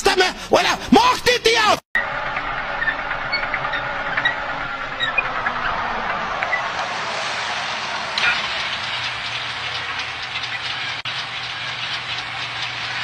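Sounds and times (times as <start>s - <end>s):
tank engine running: 2.0s - 13.0s
tank tracks clanking and squeaking: 2.8s - 5.8s.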